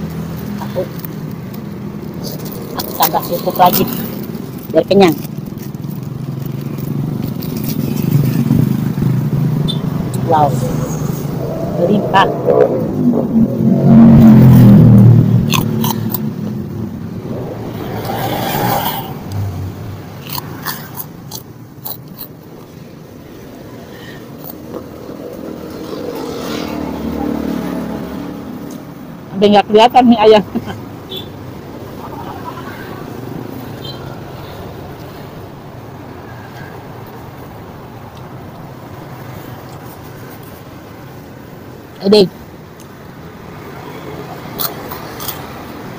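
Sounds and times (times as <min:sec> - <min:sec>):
road traffic noise: 0:00.0 - 0:45.9
motor vehicle engine running: 0:03.4 - 0:20.6
low hum: 0:09.3 - 0:20.7
chewing noodles and crackers: 0:15.5 - 0:16.2, 0:20.2 - 0:22.4
sharp crunchy clicks: 0:20.0 - 0:22.4.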